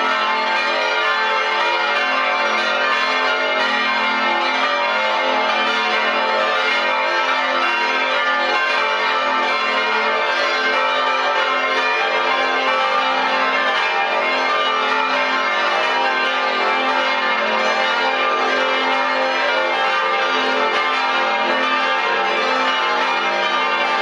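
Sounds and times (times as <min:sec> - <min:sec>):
church bells ringing: 0:00.0 - 0:24.0.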